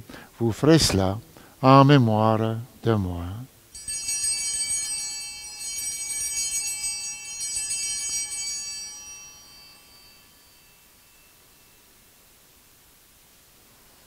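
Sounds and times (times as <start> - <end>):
altar bells jingling: 3.8 - 12.4.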